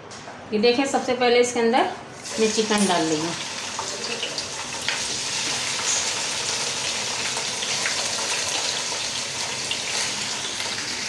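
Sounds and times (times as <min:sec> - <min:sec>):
chicken sizzling in hot oil: 0:02.2 - 0:11.0.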